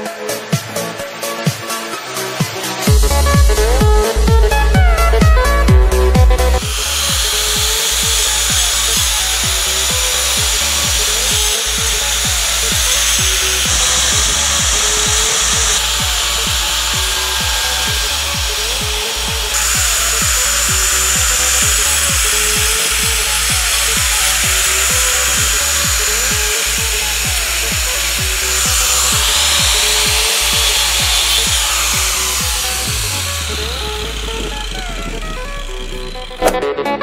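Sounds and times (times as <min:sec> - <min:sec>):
angle grinder cutting brick: 0:00.0 - 0:36.8
electronic music with beat: 0:00.0 - 0:37.0.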